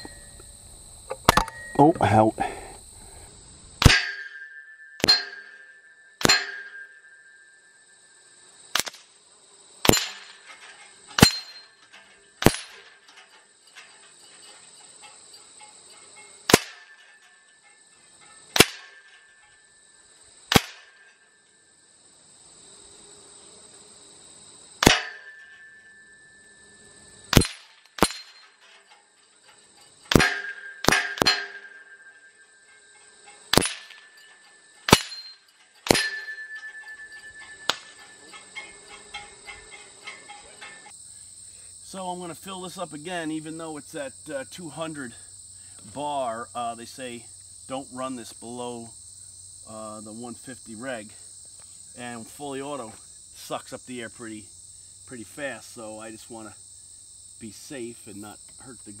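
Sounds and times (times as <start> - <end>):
pellets clanging on steel targets: 1.1 - 2.7, 3.8 - 9.2, 9.8 - 21.9, 24.8 - 47.2.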